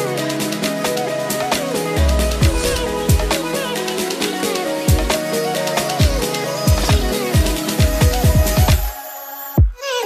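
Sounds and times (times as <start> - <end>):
electronic music with steady beat: 0.0 - 10.0
falling bass sweeps: 2.0 - 3.7.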